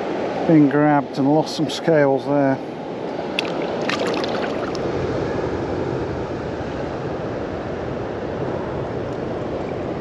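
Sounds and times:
water rushing over weir: 3.2s - 5.0s.

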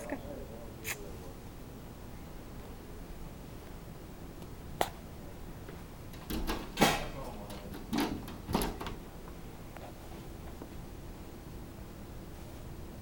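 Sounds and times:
dog paws banging glass door: 6.1s - 9.1s.

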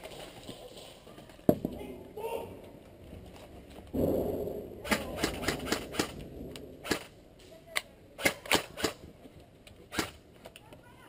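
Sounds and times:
airsoft gunshots: 4.0s - 7.2s.

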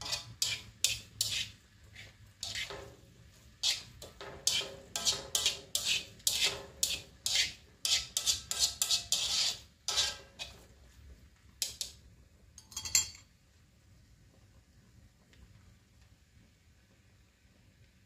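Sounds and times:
spatula clattering on plate: 0.0s - 1.5s, 2.4s - 3.0s, 3.6s - 10.6s, 11.6s - 12.0s, 12.6s - 13.3s
spatula scraping noodles in wok: 0.0s - 12.0s.

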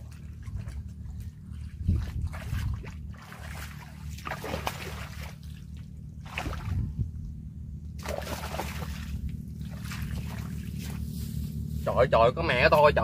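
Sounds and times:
fish splashing in water: 0.0s - 6.9s, 8.0s - 11.1s
low rumble: 0.0s - 13.0s.

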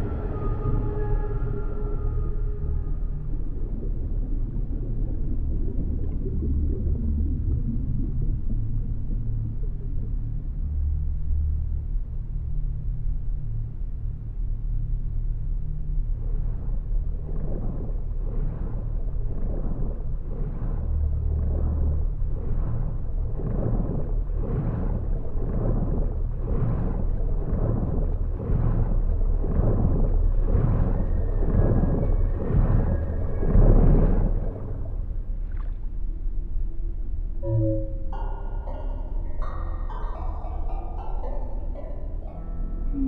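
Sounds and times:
churned water whooshing: 0.0s - 10.6s, 15.4s - 42.3s
low underwater rumble: 0.0s - 43.0s.

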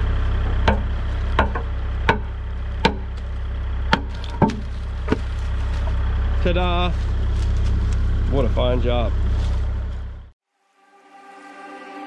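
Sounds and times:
steady low drone: 0.0s - 12.0s
hammer striking concrete: 0.6s - 3.1s.

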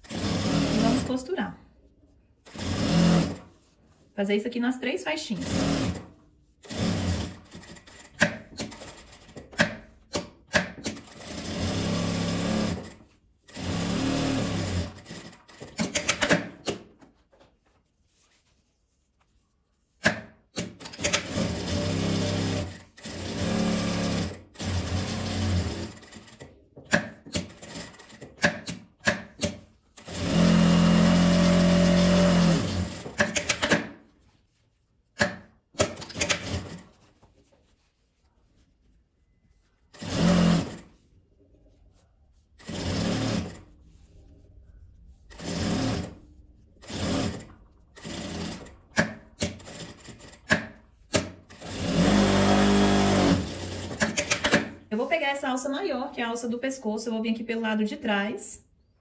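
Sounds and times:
sewing machine stitching: 0.0s - 1.2s, 2.5s - 3.5s, 5.3s - 16.8s, 20.6s - 34.0s, 35.2s - 36.9s, 39.9s - 40.9s, 42.6s - 43.7s, 45.3s - 46.2s, 46.8s - 54.8s.

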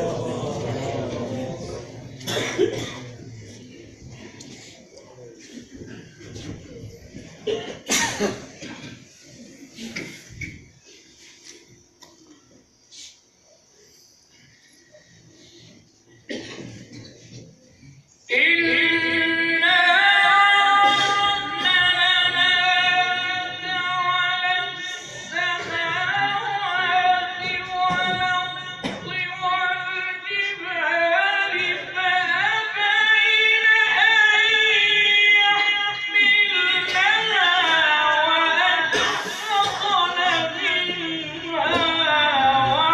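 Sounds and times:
man reciting melodically: 18.3s - 42.9s.

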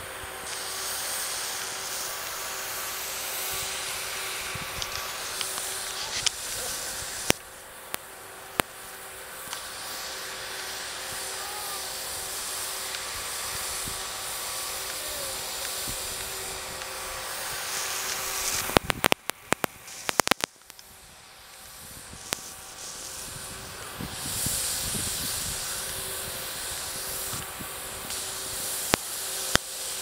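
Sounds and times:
hiss of spraying snow: 0.0s - 30.0s
steady hum: 0.0s - 30.0s
sharp ticks and knocks: 18.1s - 20.9s.

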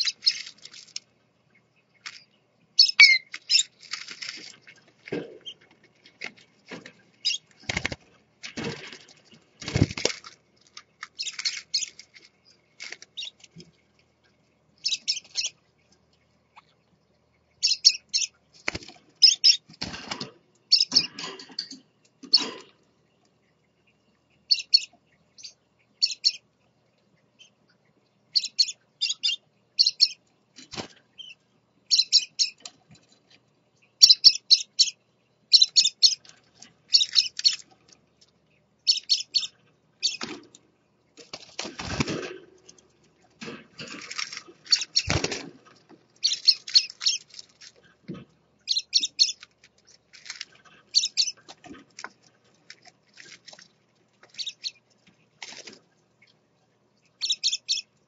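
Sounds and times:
parakeets chirping: 0.0s - 0.9s, 2.2s - 4.5s, 7.2s - 7.8s, 11.1s - 12.0s, 14.8s - 15.6s, 17.6s - 18.3s, 19.2s - 19.7s, 20.7s - 21.2s, 24.4s - 26.4s, 28.3s - 30.2s, 31.2s - 32.6s, 34.0s - 36.3s, 36.9s - 37.7s, 38.8s - 40.2s, 44.6s - 45.4s, 46.2s - 47.4s, 48.6s - 50.0s, 50.9s - 51.5s, 54.3s - 54.8s, 57.2s - 57.9s
wings flapping: 6.2s - 10.4s, 41.2s - 42.6s, 43.4s - 47.6s.

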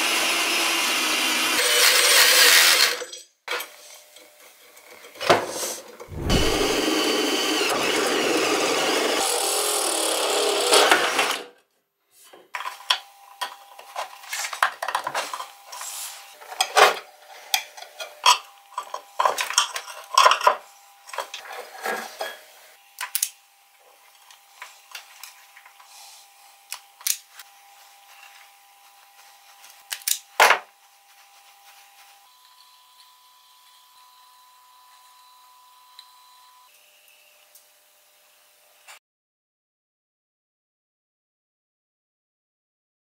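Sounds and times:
power tool running: 6.1s - 11.4s.

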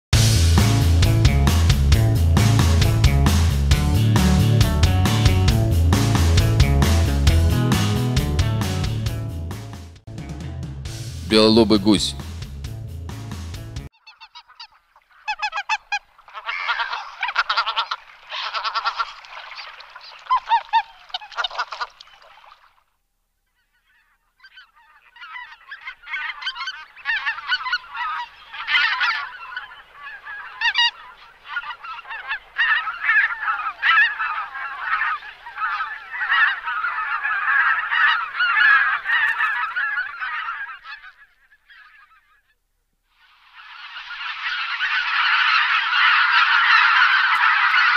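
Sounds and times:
geese honking: 13.9s - 22.6s, 23.6s - 42.6s, 43.2s - 47.9s.

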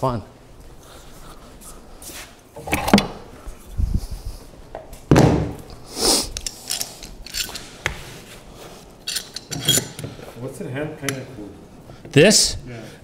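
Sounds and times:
footsteps on concrete floor: 7.4s - 8.8s.

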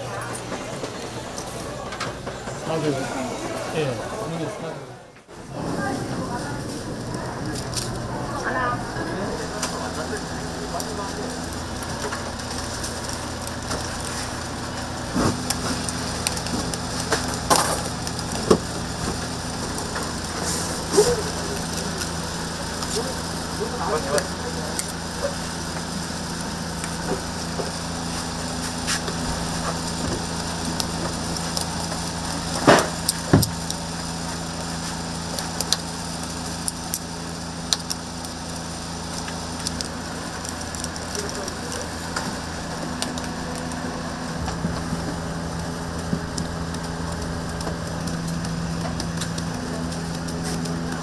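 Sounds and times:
machine hum: 0.0s - 51.0s
crackling and small clicks: 9.6s - 27.8s, 29.0s - 51.0s.

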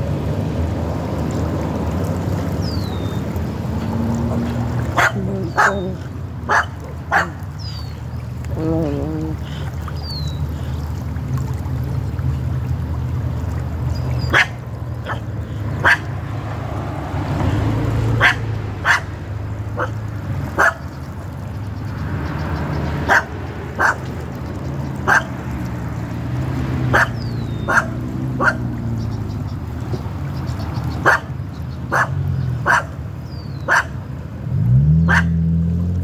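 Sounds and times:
dog barking: 5.0s - 5.9s, 6.5s - 7.4s, 14.3s - 16.1s, 18.2s - 19.1s, 19.8s - 20.0s, 20.6s - 20.8s, 23.1s - 24.0s, 25.1s - 25.3s, 26.9s - 28.6s, 31.0s - 31.3s, 31.9s - 32.9s, 33.7s - 34.0s, 35.1s - 35.4s.

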